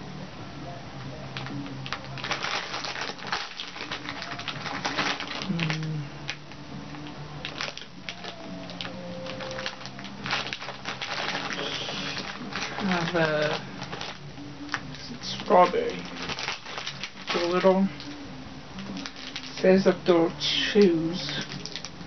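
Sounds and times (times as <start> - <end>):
soft background music: 0.0 - 22.0
candy wrapper crinkling: 1.3 - 18.2, 18.8 - 22.0.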